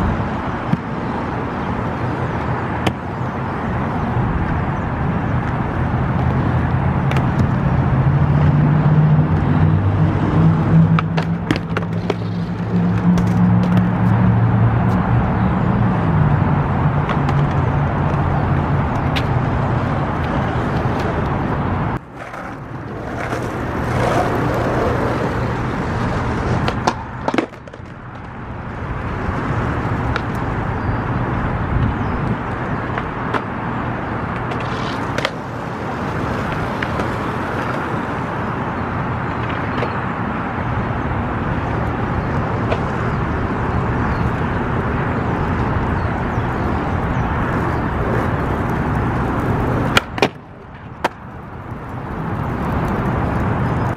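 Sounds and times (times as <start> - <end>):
city traffic: 0.0 - 53.9
skateboard wheels rolling on concrete: 0.0 - 53.9
skateboard clacks: 0.6 - 3.2, 5.4 - 8.6, 10.7 - 15.0, 16.8 - 30.6, 31.8 - 33.6, 34.2 - 38.3, 39.3 - 40.0, 41.5 - 43.4, 44.2 - 53.9.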